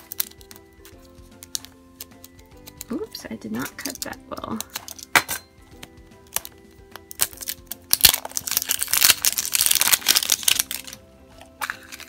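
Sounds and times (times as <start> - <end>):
plastic egg clicking open: 0.0 - 2.9, 5.7 - 11.0
background music: 0.0 - 12.0
plastic bag crinkling: 6.4 - 12.0.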